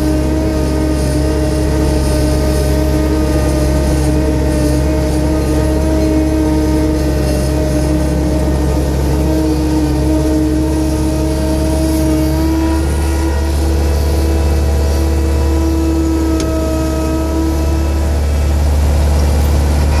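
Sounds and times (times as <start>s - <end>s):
loader engine droning: 0.0s - 20.0s.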